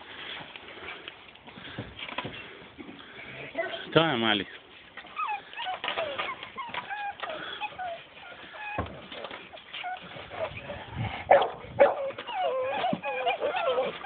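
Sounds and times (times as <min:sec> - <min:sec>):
puppies whimpering and whining: 0:04.8 - 0:11.2, 0:11.9 - 0:14.0.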